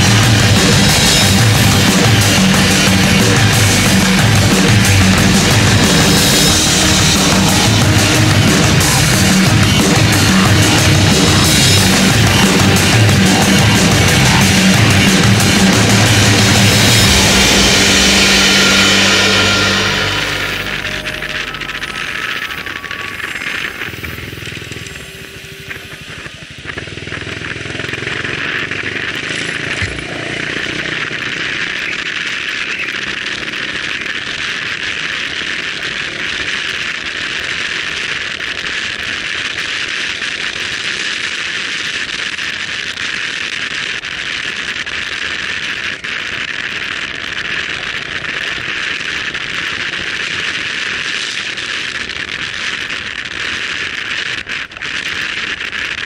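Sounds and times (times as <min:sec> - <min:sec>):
motorcycle engine running: 0:00.0 - 0:33.8
wind and road noise: 0:21.5 - 0:37.1.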